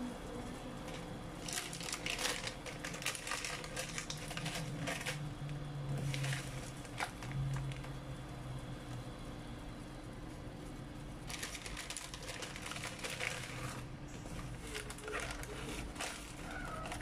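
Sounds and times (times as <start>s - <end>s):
plastic wrapper crinkling: 0.8s - 5.3s, 6.0s - 8.0s, 11.2s - 17.0s.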